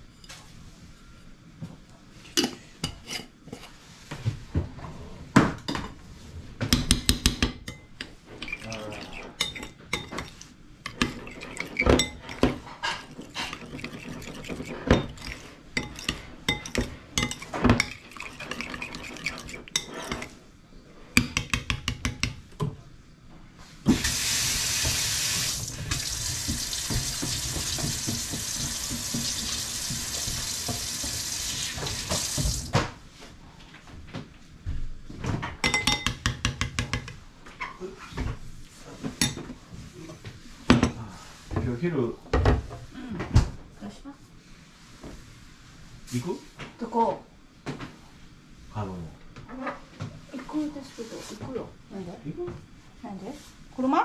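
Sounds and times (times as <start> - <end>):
teaspoon clinking in ceramic bowl: 13.0 - 20.3.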